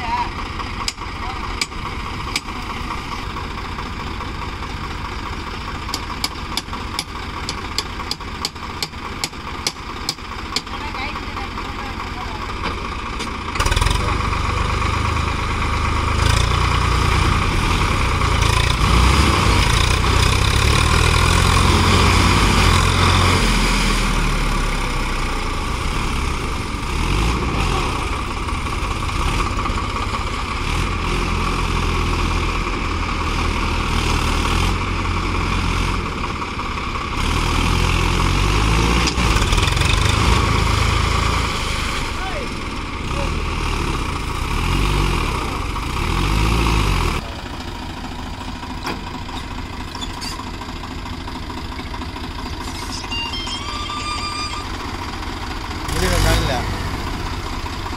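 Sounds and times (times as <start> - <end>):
diesel tractor engine running hard: 0.0 - 57.9.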